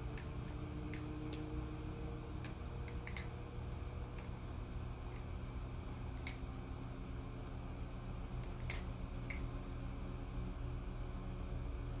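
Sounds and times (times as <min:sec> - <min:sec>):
steady low hum: 0:00.0 - 0:12.0
butterfly knife metallic clicks: 0:02.4 - 0:03.4, 0:08.4 - 0:09.5.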